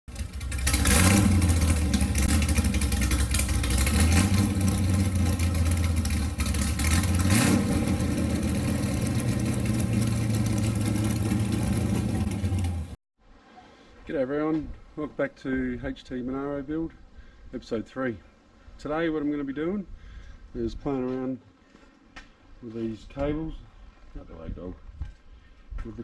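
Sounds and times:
car engine idling and revving: 0.1s - 13.0s.

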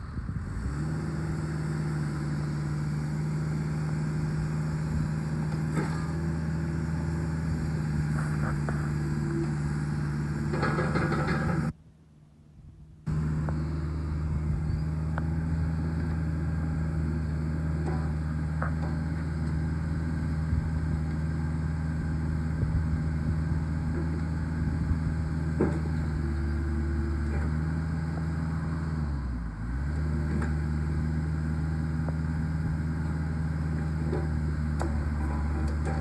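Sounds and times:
excavator diesel engine running: 0.0s - 11.8s, 13.1s - 36.0s
short metallic knocks: 10.4s - 11.7s.

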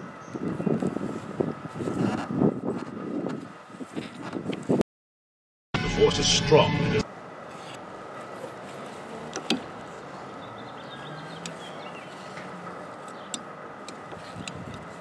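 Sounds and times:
outdoor background hiss: 7.0s - 15.0s.

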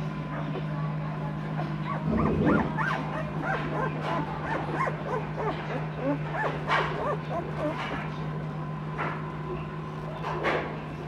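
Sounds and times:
puppies whimpering and squeaking: 1.4s - 8.3s
low hum: 1.9s - 3.6s.

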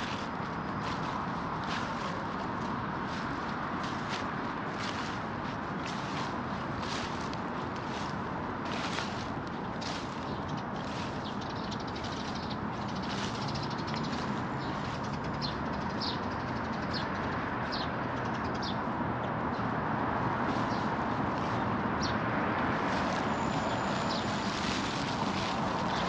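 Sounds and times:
footsteps crunching: 0.0s - 15.1s, 20.3s - 26.0s
distant city traffic hum: 0.0s - 26.0s.

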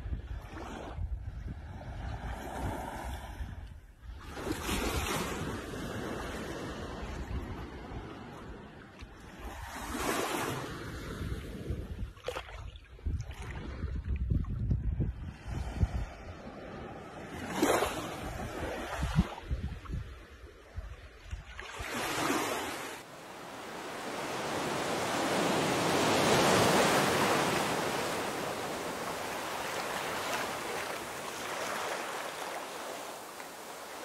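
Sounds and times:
wind buffeting microphone: 0.0s - 5.0s, 11.0s - 16.9s, 18.2s - 21.5s
water swishes: 21.0s - 34.0s
sea water washing in shallows: 21.4s - 34.0s
surf washing: 21.7s - 34.0s.

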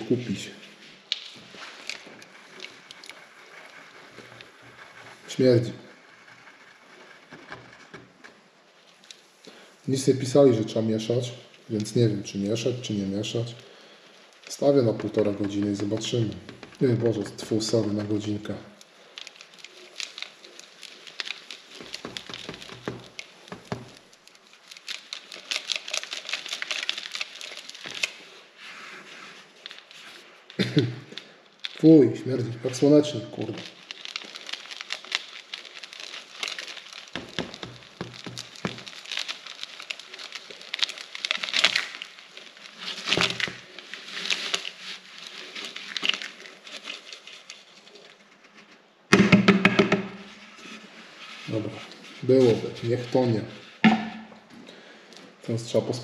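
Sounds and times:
granules pouring into a bucket: 30.7s - 47.7s.

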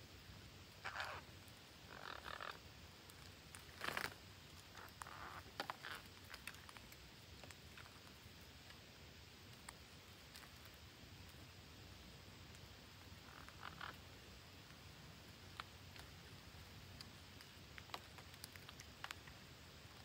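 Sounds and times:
leaves and twigs rustling: 0.2s - 20.0s
sharp clicks of parakeets nibbling: 15.5s - 20.0s.

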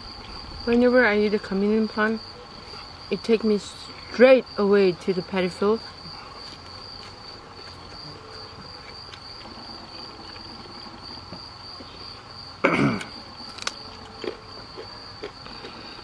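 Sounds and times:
crickets chirring: 0.0s - 16.0s
crunchy chewing: 5.9s - 16.0s.

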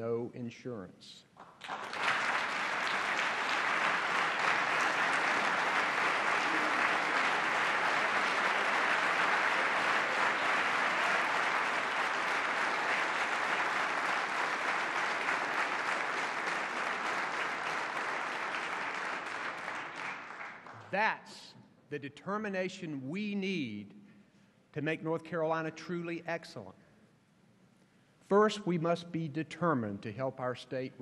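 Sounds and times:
large crowd applauding: 1.4s - 21.0s.

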